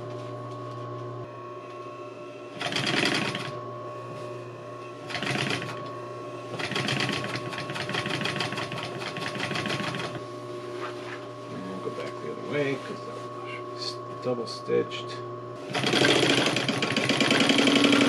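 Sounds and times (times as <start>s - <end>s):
steady machine hum: 0.0s - 18.0s
sewing machine stitching canvas: 2.6s - 3.5s, 5.1s - 5.8s, 6.6s - 10.2s, 15.7s - 18.0s.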